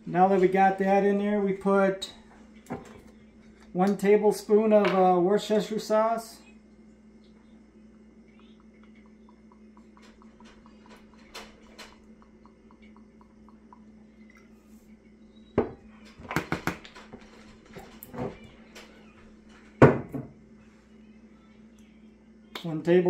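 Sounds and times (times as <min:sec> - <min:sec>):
glass bottle set down on wooden table: 0:19.8 - 0:20.4.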